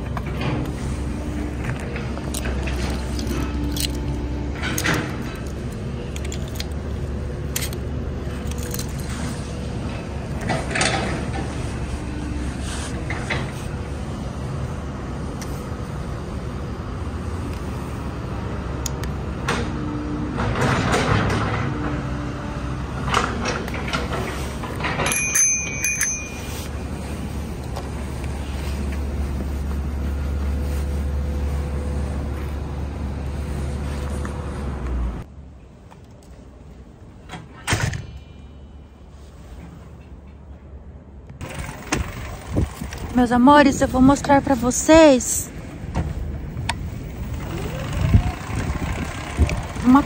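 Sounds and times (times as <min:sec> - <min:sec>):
bicycle parts clicking and knocking: 0:02.2 - 0:06.8, 0:07.5 - 0:07.8, 0:08.4 - 0:09.1.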